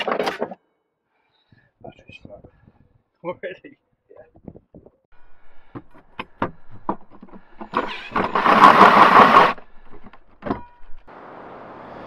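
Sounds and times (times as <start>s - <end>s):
drill cutting into wooden floor: 7.8s - 9.6s.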